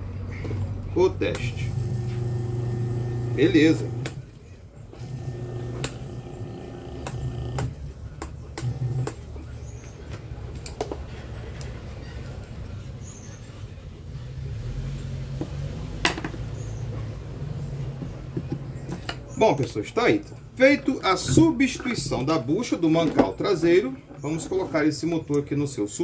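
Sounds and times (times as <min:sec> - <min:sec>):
electric fan motor humming: 0:01.2 - 0:08.0, 0:08.6 - 0:09.2.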